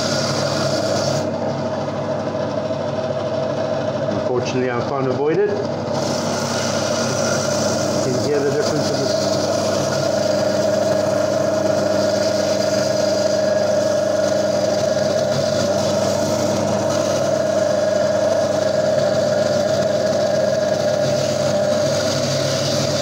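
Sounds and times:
bandsaw whining: 0.0s - 1.8s, 4.3s - 23.0s.

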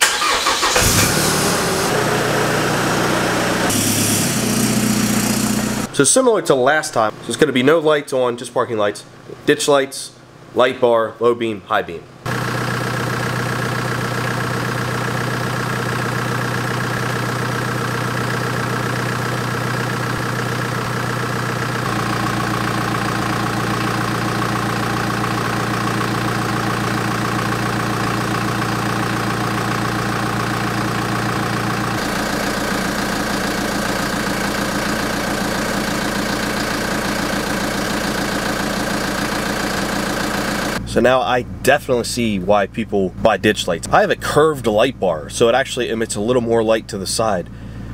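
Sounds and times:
diesel engine idling: 0.0s - 5.9s, 12.2s - 47.9s.

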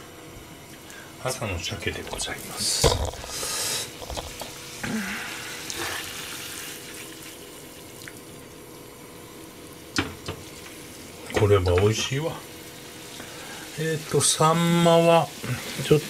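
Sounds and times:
sauce bubbling in frying pan: 2.0s - 11.7s, 12.4s - 14.4s.

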